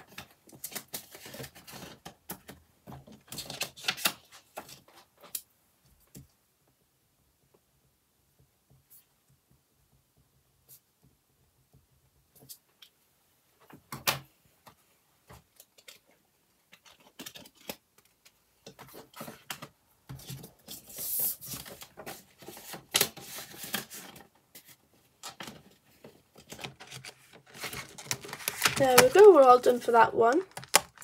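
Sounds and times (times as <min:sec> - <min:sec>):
paper and plastic sleeves rustling: 0:00.0 - 0:05.4, 0:14.7 - 0:31.0.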